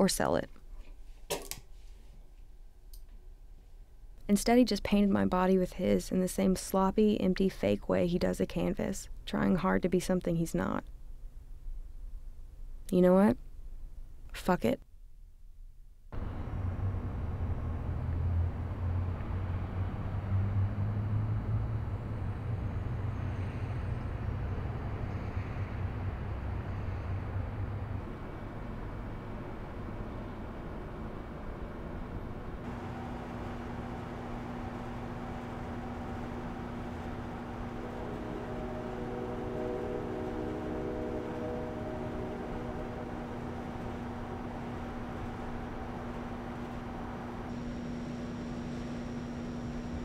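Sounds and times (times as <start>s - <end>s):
low city rumble and hum: 1.6s - 50.0s
higher droning tones: 16.1s - 50.0s.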